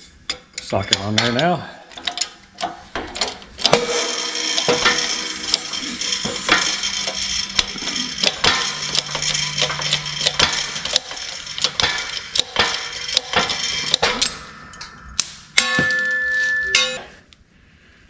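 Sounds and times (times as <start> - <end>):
hydraulic press metallic clicks: 0.9 - 14.5
steady ringing tone: 3.6 - 17.3.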